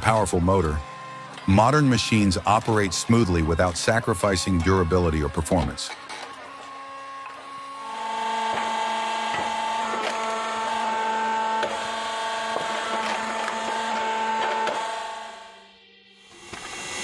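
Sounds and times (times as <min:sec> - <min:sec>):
hydraulic power unit whining: 0:00.0 - 0:17.0.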